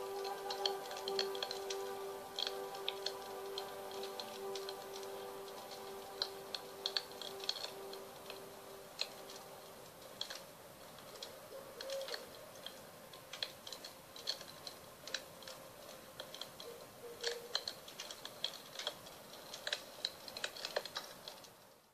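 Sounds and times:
singing bowl tone: 0.0s - 9.8s
wood fire crackling and popping: 0.0s - 21.9s.

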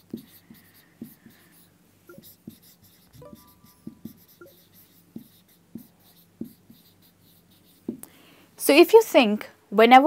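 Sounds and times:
marker pen taps: 0.0s - 1.5s, 2.1s - 7.0s, 7.7s - 8.1s
marker pen scratching on whiteboard: 0.0s - 8.0s.

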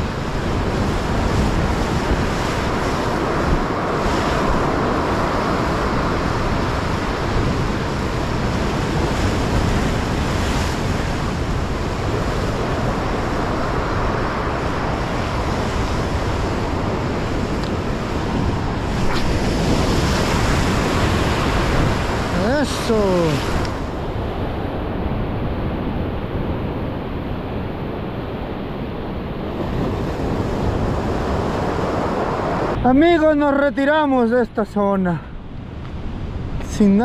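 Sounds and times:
surf breaking over rocks: 0.0s - 28.5s.

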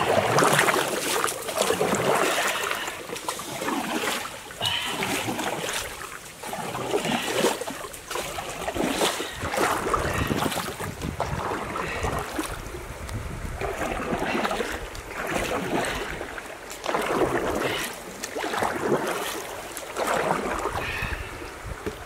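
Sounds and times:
paddle splashing in water: 0.0s - 22.0s
wind on microphone: 8.6s - 16.4s, 20.3s - 22.0s.

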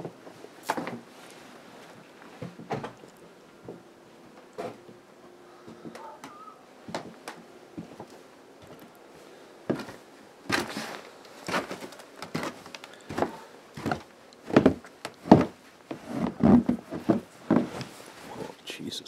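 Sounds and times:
footsteps crunching in snow: 9.8s - 18.4s.

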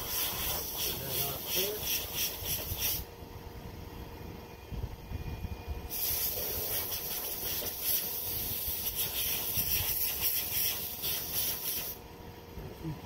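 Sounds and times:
air hissing from fitting: 0.0s - 3.0s, 5.9s - 12.0s.

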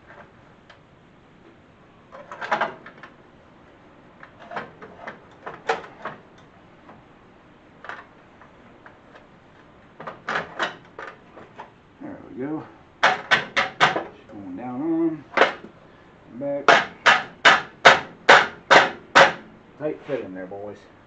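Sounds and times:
sheet metal clunks and knocks: 13.0s - 14.1s.

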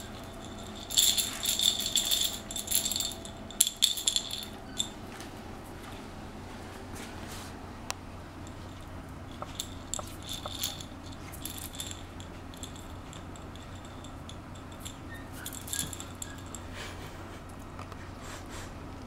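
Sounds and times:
toy clicking and rattling on floor: 0.0s - 5.0s, 8.4s - 16.8s
steady low hum: 0.0s - 19.0s
puppy scrabbling: 9.3s - 16.7s.

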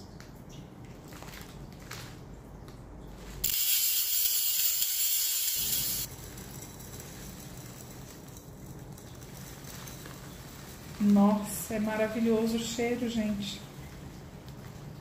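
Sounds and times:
plastic bag rustling: 0.8s - 3.4s, 6.0s - 12.7s
herbs and salt pouring into glass jar: 3.2s - 12.7s.

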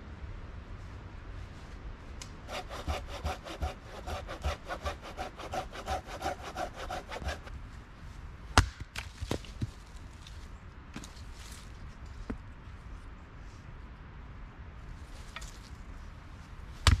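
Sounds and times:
handsaw cutting log: 2.5s - 7.5s
axe striking firewood: 8.6s - 9.8s, 16.8s - 17.0s.

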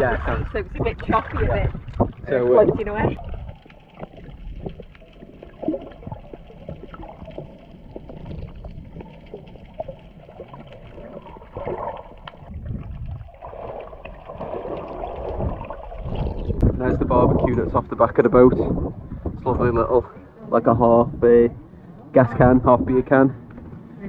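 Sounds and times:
underwater sloshing and gurgling: 0.0s - 24.0s
small clicks underwater: 1.8s - 2.2s, 3.2s - 12.5s.

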